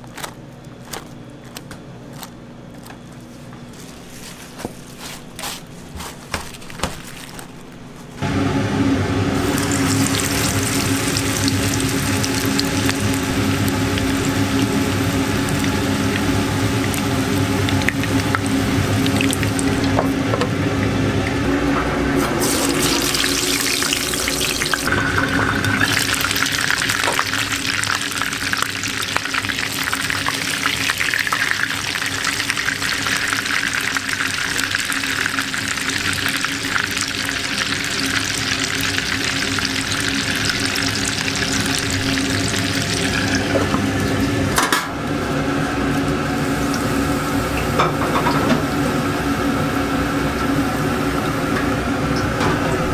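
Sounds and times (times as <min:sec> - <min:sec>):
patty sizzling in hot oil: 0:09.4 - 0:20.0, 0:22.4 - 0:43.6.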